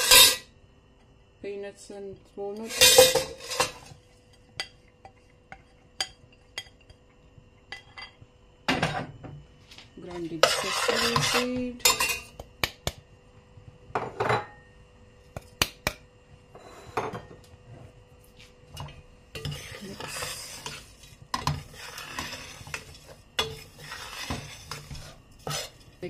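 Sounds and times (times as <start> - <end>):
spoon scraping seeds in pan: 10.0 - 12.4, 19.3 - 26.0.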